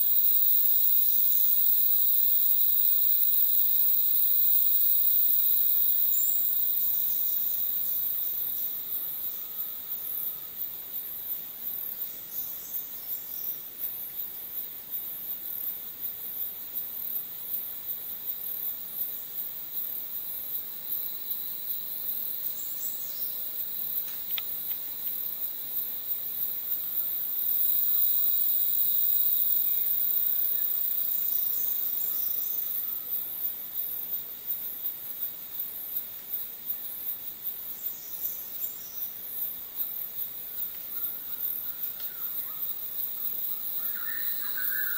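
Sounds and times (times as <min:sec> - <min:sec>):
pulsing high insect call: 0:00.0 - 0:44.9.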